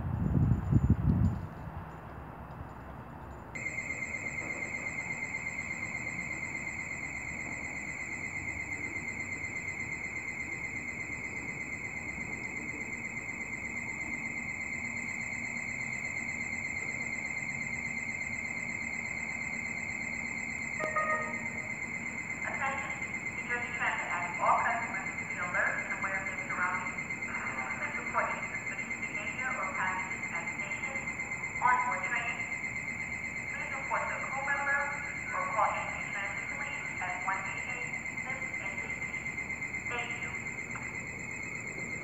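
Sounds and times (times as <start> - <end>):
high-pitched warbling warning tone: 20.7 - 32.6, 33.4 - 42.0.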